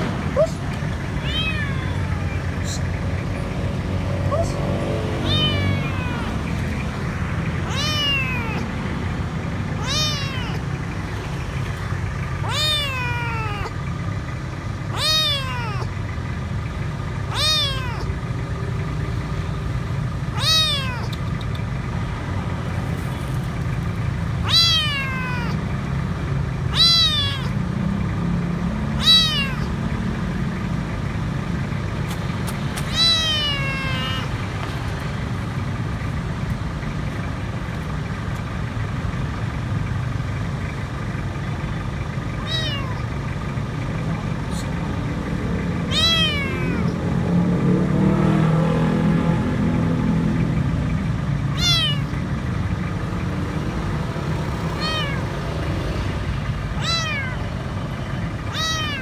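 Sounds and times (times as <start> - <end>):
kitten meowing: 1.2 - 2.8, 5.2 - 6.8, 7.6 - 8.7, 9.7 - 10.8, 12.4 - 13.8, 14.9 - 15.9, 17.3 - 18.2, 20.2 - 21.5, 24.4 - 25.7, 26.7 - 27.6, 29.0 - 29.7, 32.8 - 34.5, 42.4 - 43.1, 45.8 - 47.0, 51.5 - 52.2, 54.7 - 55.4, 56.7 - 59.0.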